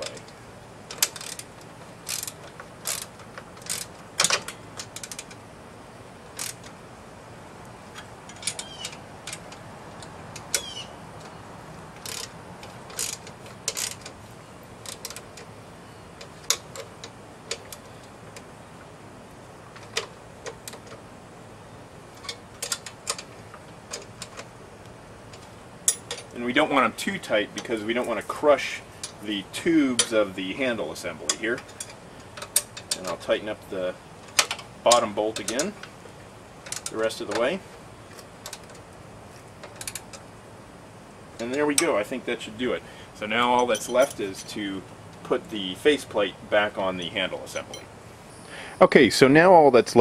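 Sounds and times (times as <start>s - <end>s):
ratchet wrench clicking: 0.0s - 5.4s, 6.3s - 6.7s, 12.0s - 14.2s, 22.2s - 23.3s.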